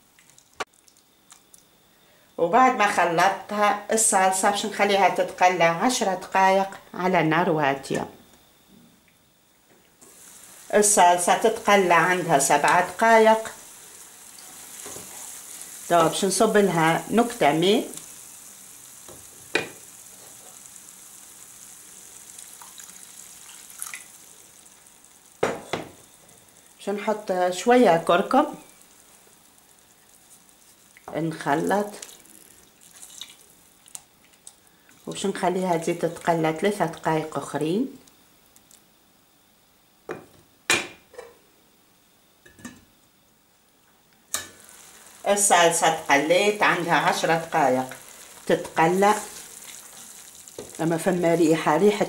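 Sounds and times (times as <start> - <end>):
sauce sizzling: 0.0 - 8.7, 9.3 - 52.0
water poured into a pan: 10.1 - 25.4, 28.2 - 37.1, 44.5 - 52.0
utensils knocking on frying pan: 19.1 - 19.8.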